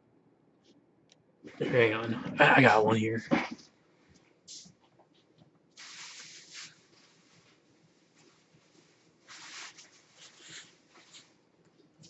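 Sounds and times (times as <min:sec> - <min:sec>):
wrappers rustling: 0:05.8 - 0:12.0.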